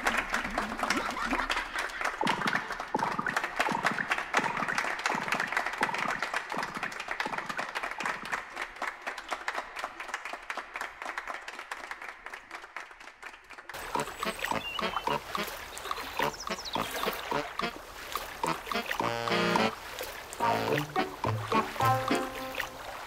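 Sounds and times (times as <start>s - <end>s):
applause: 0.0s - 15.7s, 20.4s - 22.8s.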